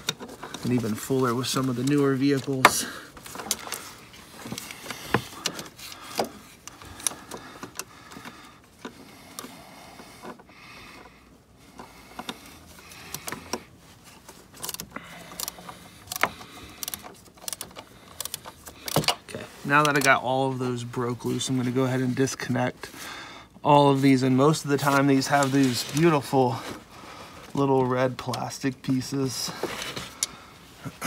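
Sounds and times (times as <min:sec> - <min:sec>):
ratchet clicking and rattling: 0:14.5 - 0:19.1.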